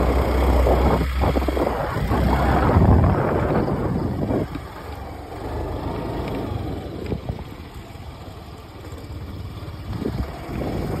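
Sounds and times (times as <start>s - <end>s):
wind buffeting microphone: 0.0s - 5.1s.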